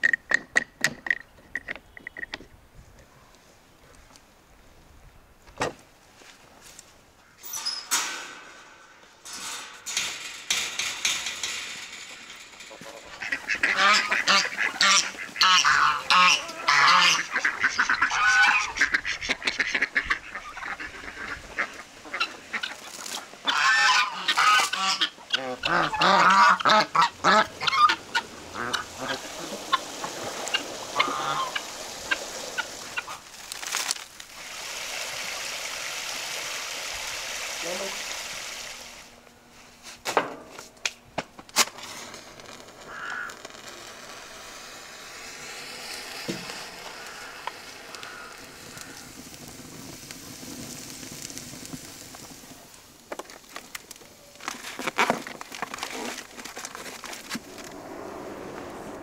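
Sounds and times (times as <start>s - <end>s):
poultry flock calling: 12.7s - 33.2s, 46.4s - 49.1s.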